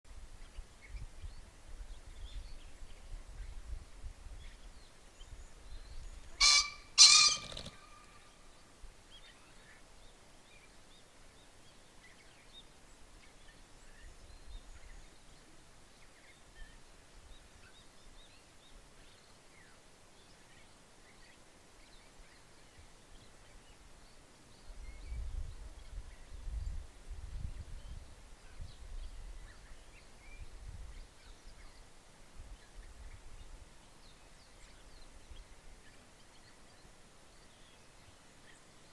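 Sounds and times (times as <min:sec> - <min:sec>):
pheasant crowing: 0:06.3 - 0:08.4.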